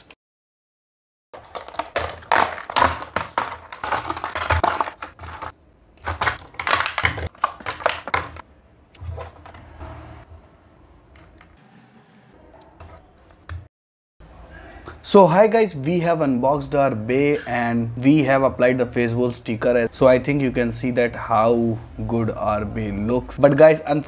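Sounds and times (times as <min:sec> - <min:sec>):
plastic packaging crinkling and tearing: 0:01.4 - 0:05.5.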